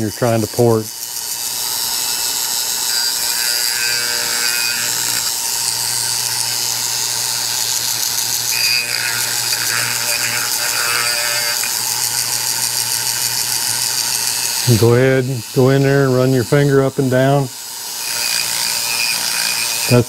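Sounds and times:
rotary tool grinding metal: 0.0s - 20.0s.

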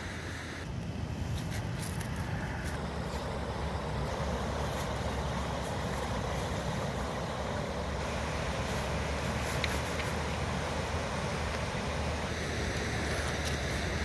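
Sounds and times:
wind rumbling on microphone: 0.6s - 14.0s
river rapids rushing: 2.5s - 14.0s.

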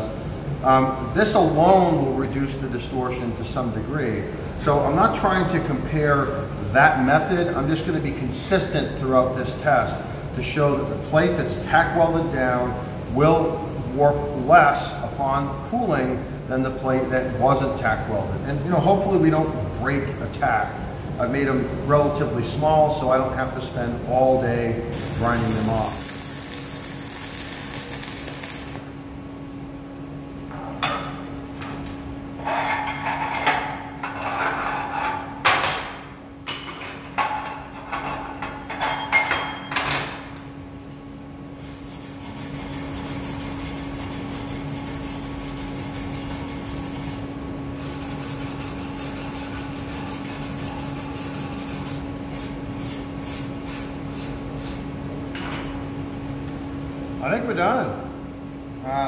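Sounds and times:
steady machine hum: 0.0s - 59.0s
welding arc crackling: 24.9s - 29.0s.

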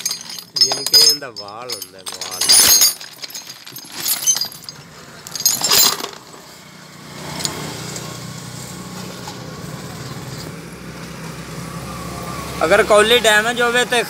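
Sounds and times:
metal parts clinking: 0.0s - 6.4s.

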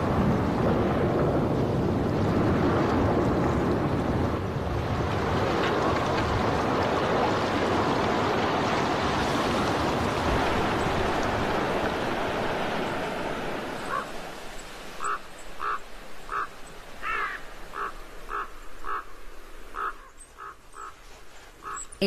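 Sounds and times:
snow avalanche rushing: 0.0s - 14.0s.

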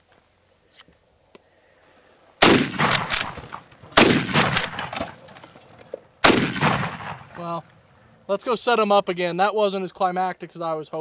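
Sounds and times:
rifle shots with echo: 2.4s - 5.2s, 6.2s - 7.6s.

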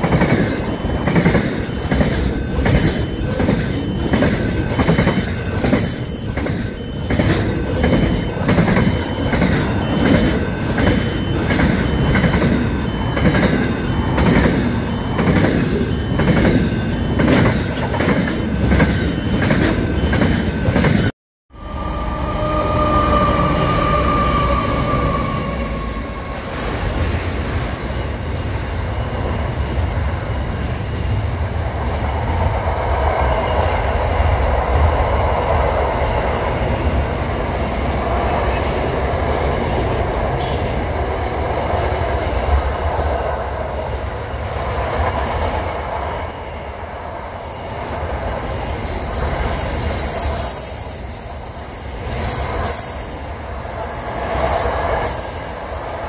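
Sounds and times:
freight train wheels rumbling: 0.0s - 56.0s
high-pitched wheel squeal: 21.6s - 27.0s, 38.5s - 39.5s, 48.5s - 53.3s.

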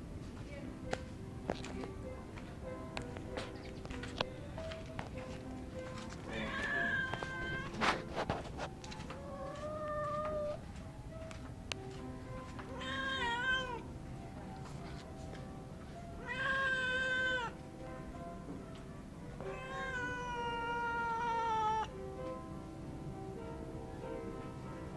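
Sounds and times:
kitten meowing: 6.3s - 7.7s, 9.3s - 10.6s, 12.8s - 13.8s, 16.2s - 17.5s, 19.4s - 21.9s.

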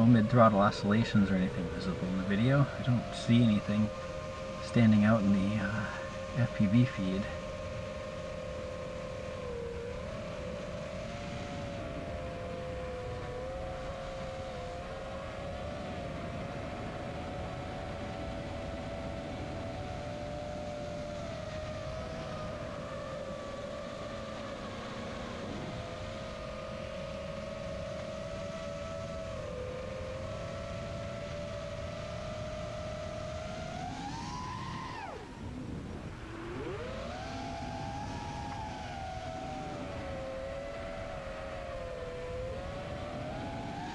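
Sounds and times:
quadcopter motors whining: 0.0s - 43.9s.

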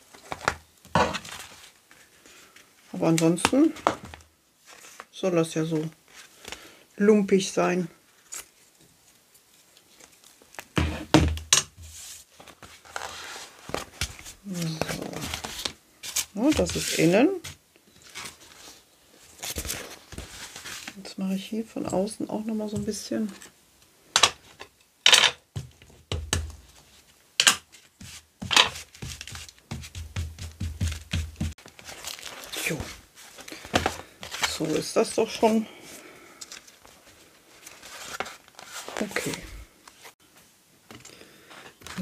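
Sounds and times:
fabric rustling: 11.8s - 21.1s, 26.6s - 40.2s.

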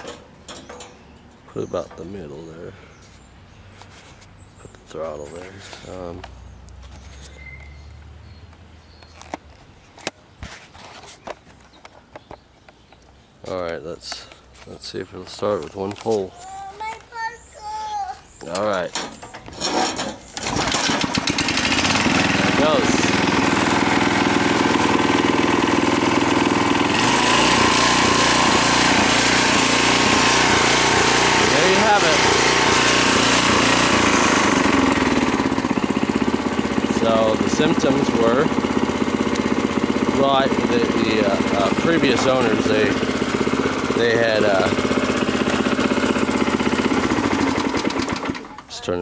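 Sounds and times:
knocks and clicks handling tiller: 0.0s - 2.2s, 18.4s - 25.0s
tiller engine running: 18.4s - 49.0s.

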